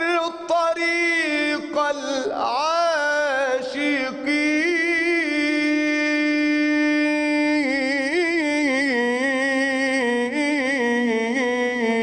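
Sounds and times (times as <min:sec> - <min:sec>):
man singing unaccompanied: 0:00.0 - 0:12.0.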